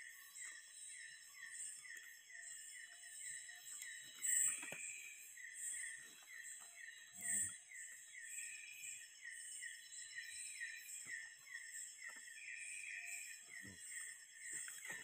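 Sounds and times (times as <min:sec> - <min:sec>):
insect chirping: 0:00.0 - 0:15.0.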